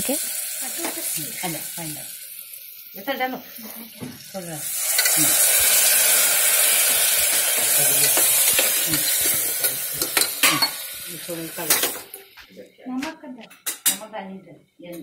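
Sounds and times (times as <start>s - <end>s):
food sizzling in a pot: 0.0s - 12.7s
metal spoon clinking on pot: 7.3s - 10.8s.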